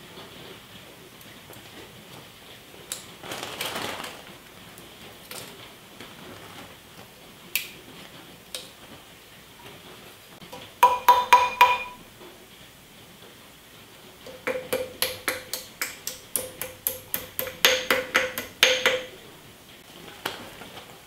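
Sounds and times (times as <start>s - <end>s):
hammer tapping metal: 10.5s - 12.1s, 14.2s - 19.2s.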